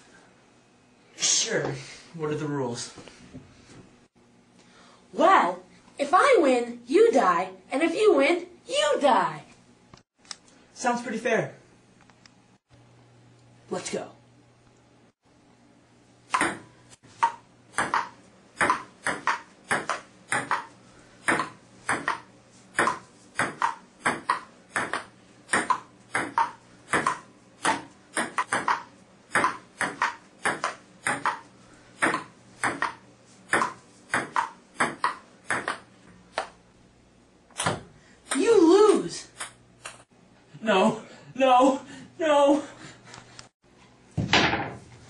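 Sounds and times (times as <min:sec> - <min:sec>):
table tennis ball clicking: 0:21.3 - 0:31.4.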